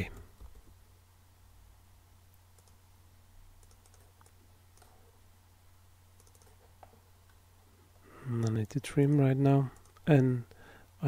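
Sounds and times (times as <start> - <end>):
low steady hum: 0.0 - 11.0
computer mouse clicks: 2.3 - 2.8, 3.6 - 5.1, 6.2 - 7.4, 8.4 - 10.3.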